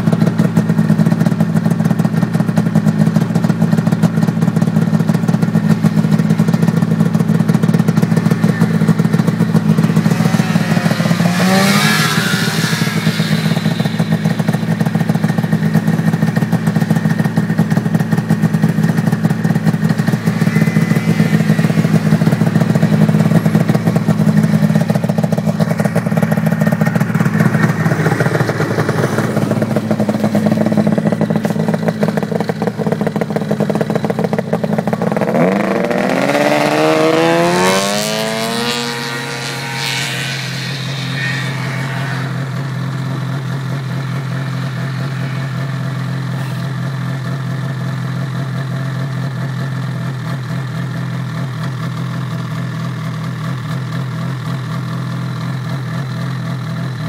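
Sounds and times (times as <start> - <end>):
snowmobile engine at high throttle: 0.0 - 57.0
rushing hiss: 8.8 - 15.8.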